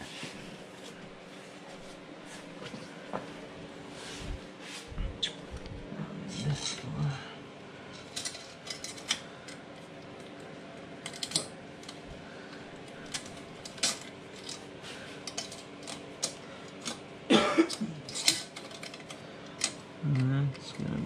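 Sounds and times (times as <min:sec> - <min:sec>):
metallic clicks of parts handled: 0:08.0 - 0:09.6.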